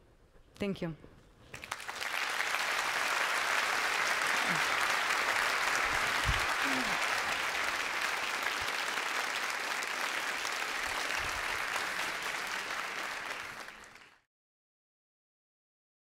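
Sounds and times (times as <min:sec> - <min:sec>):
large audience applauding: 0:01.5 - 0:14.3.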